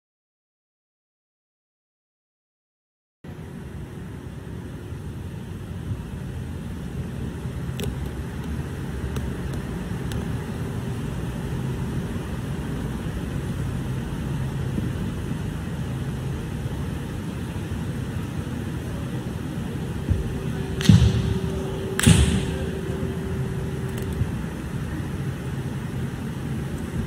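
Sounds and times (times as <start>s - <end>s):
low rumbling: 19.3s - 27.0s.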